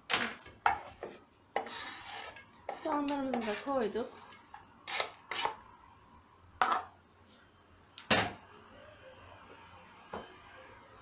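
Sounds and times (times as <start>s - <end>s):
knife scraping cutting board: 1.0s - 2.4s, 3.3s - 3.7s.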